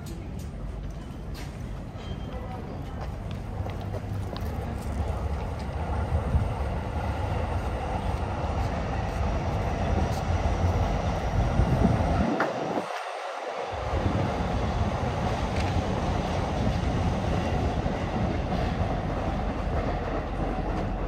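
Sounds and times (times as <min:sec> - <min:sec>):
electric train rumbling on rails: 0:00.0 - 0:21.0.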